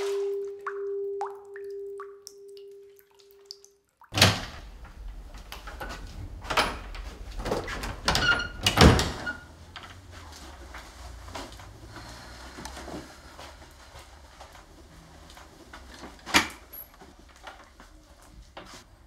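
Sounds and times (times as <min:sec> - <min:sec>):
door and handle clunking: 0:04.2 - 0:09.5.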